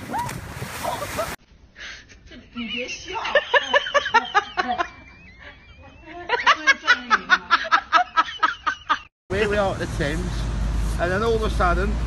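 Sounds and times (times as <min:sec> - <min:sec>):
hearty laughter: 0:03.3 - 0:09.1.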